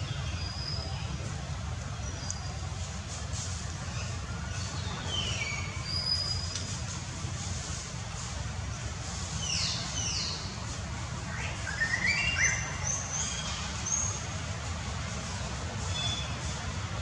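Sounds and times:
birds chirping and whistling: 11.3s - 14.1s.

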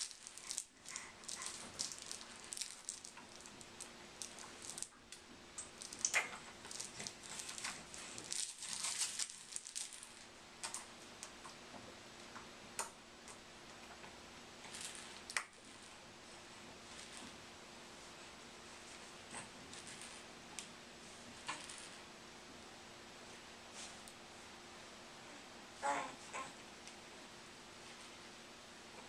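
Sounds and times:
plush toy rustling and clicking: 0.0s - 11.4s.

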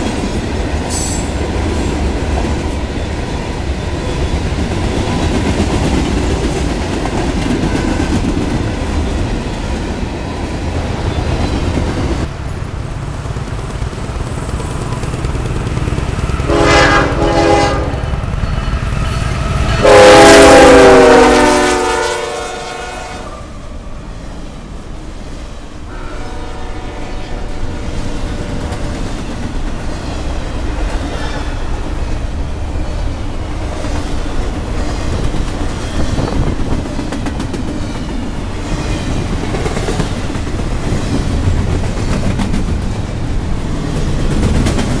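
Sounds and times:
freight train wheels clattering: 0.0s - 20.0s, 27.8s - 45.0s
train horn: 7.6s - 8.2s, 16.4s - 18.3s, 19.0s - 23.6s, 25.9s - 27.9s.

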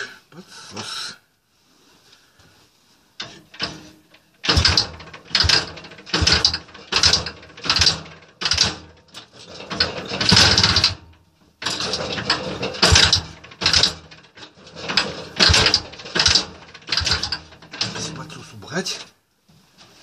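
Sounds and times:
scooter engine being kick-started: 9.7s - 11.0s, 11.7s - 14.2s, 14.8s - 18.0s.

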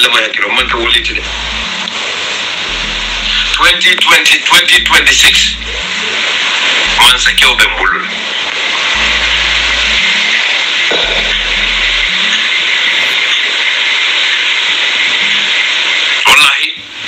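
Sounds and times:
loud steady hiss: 0.5s - 17.0s
low hum: 0.6s - 4.0s, 4.7s - 13.7s
person speaking: 0.6s - 6.3s, 6.9s - 13.4s.

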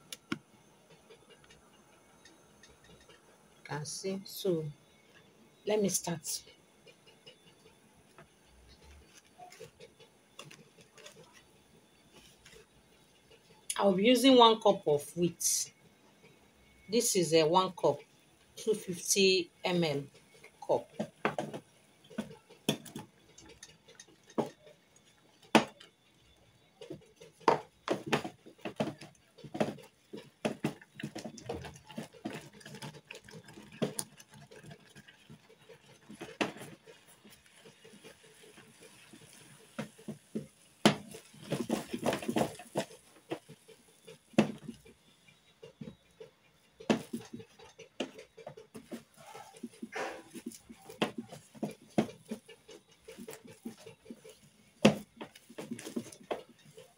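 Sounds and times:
wooden spatula stirring in pot: 0.0s - 56.9s
knocks and scrapes against pot: 0.2s - 3.3s, 19.8s - 56.9s.

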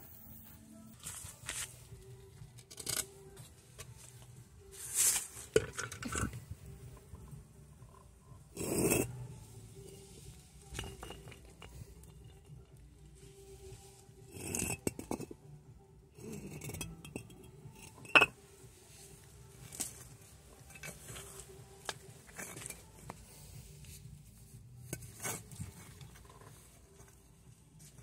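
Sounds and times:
hard objects clinking and knocking: 10.7s - 12.8s, 14.3s - 15.4s, 16.2s - 18.4s.

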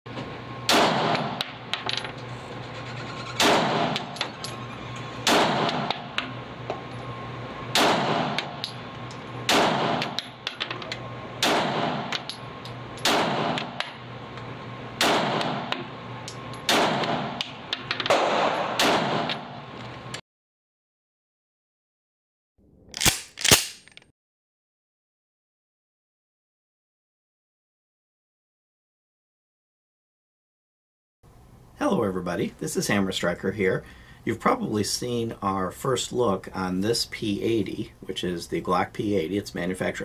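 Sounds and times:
pistol shots echoing indoors: 0.7s - 1.6s, 3.4s - 4.2s, 5.2s - 6.1s, 7.7s - 8.6s, 9.5s - 10.2s, 11.4s - 12.3s, 13.0s - 13.9s, 15.0s - 15.8s, 16.7s - 17.5s, 18.1s - 19.6s.

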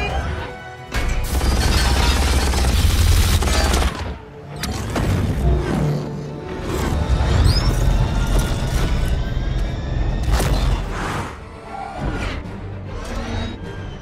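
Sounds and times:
action film music: 0.0s - 14.0s
gunfire and blasts: 0.9s - 5.2s.

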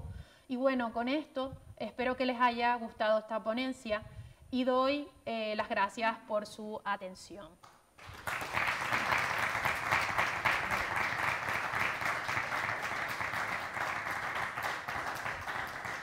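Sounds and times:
audience applauding: 8.0s - 16.0s.

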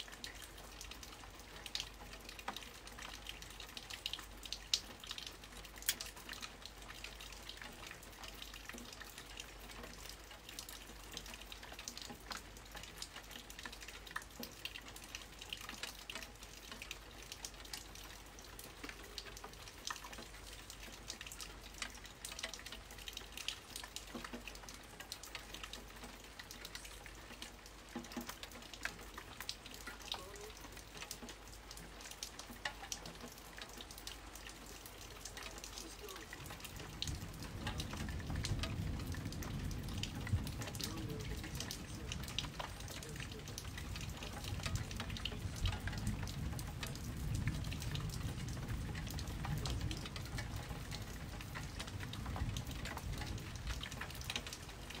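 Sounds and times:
rain patter: 0.0s - 55.0s
low thunder rumble: 36.6s - 54.3s.

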